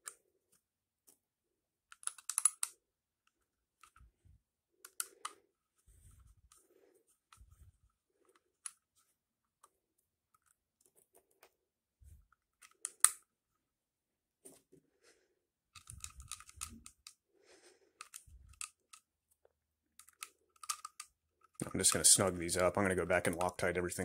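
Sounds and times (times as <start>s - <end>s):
plastic and metal parts clicking: 1.8s - 4.1s, 4.8s - 5.4s, 8.2s - 11.6s, 12.2s - 13.3s, 15.7s - 17.2s, 18.0s - 22.2s, 23.2s - 23.7s.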